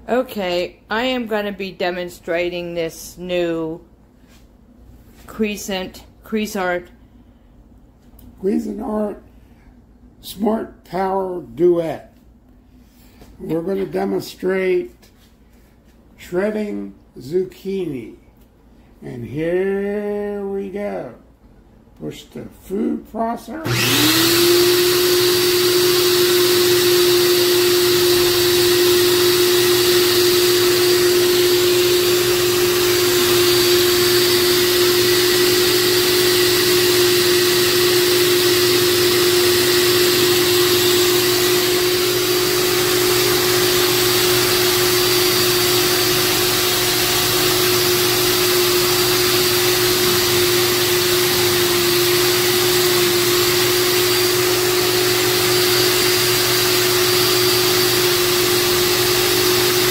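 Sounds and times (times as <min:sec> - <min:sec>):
food processor running: 0:23.6 - 0:59.9.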